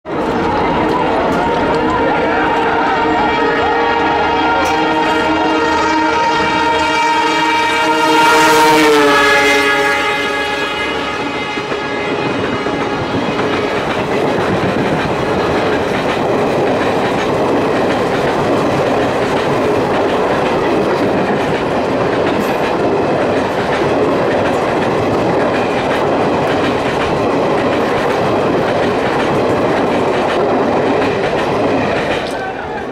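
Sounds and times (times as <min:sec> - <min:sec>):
train wheels rushing on rails: 0:00.1 - 0:32.9
locomotive horn: 0:00.3 - 0:14.0
wheels clattering over rail joints: 0:13.5 - 0:32.9.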